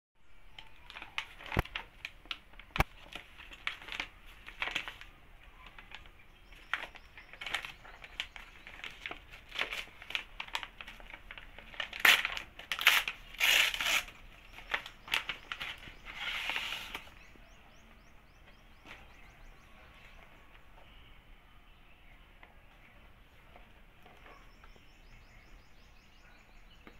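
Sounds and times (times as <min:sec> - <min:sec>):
paper bag crinkling and rustling: 0:00.6 - 0:17.3
paper tearing: 0:11.7 - 0:17.2.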